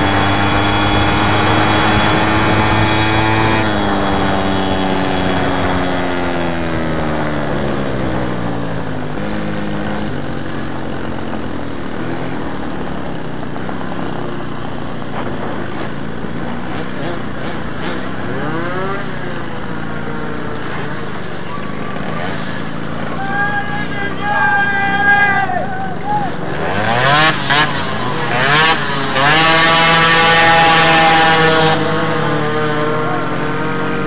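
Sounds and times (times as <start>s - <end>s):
moped engine buzzing: 0.0s - 34.0s.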